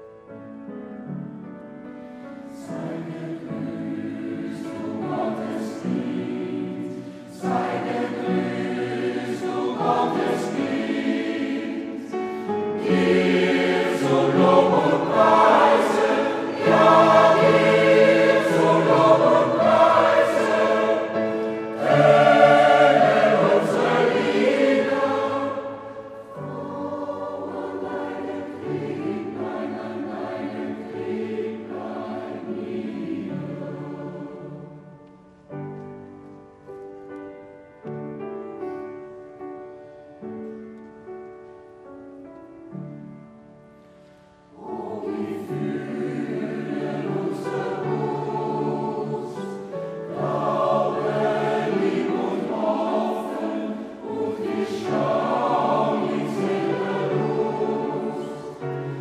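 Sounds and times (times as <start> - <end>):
mixed choir singing: 2.4 - 35.0, 44.4 - 59.0.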